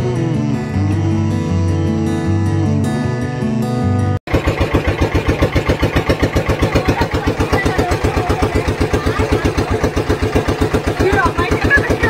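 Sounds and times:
boat engine chugging: 0:04.3 - 0:12.0.

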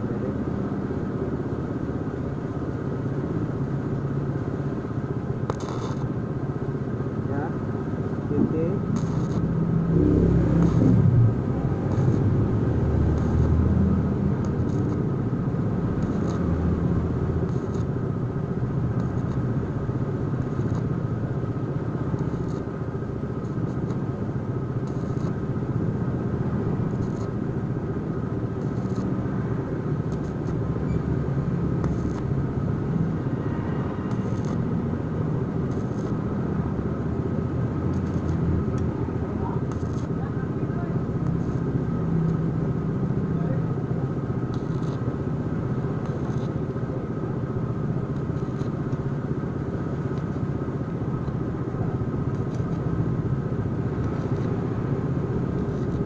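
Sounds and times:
welding arc crackling: 0:00.9 - 0:56.0
sharp welding pops: 0:05.4 - 0:06.2, 0:08.9 - 0:09.6, 0:10.4 - 0:25.6, 0:26.8 - 0:27.5, 0:28.4 - 0:29.2, 0:29.8 - 0:33.2, 0:34.1 - 0:34.7, 0:35.5 - 0:36.7, 0:37.8 - 0:39.0, 0:39.6 - 0:40.4, 0:41.0 - 0:42.5, 0:44.4 - 0:46.9, 0:47.8 - 0:51.6, 0:52.2 - 0:56.0.

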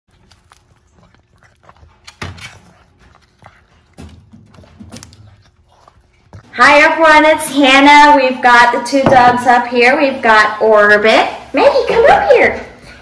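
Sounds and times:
dog gnawing on chew: 0:00.1 - 0:06.5.

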